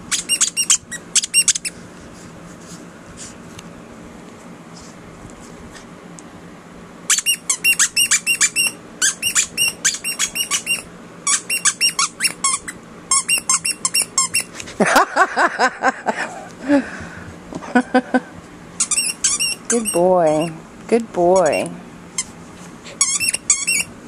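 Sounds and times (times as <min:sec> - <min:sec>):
high-pitched squeaks: 0:00.1 - 0:01.8, 0:07.1 - 0:14.5, 0:18.8 - 0:20.6, 0:23.0 - 0:23.9.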